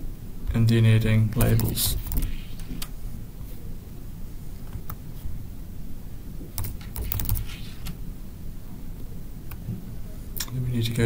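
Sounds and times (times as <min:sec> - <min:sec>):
computer keyboard typing: 0:01.4 - 0:02.7, 0:06.6 - 0:07.6.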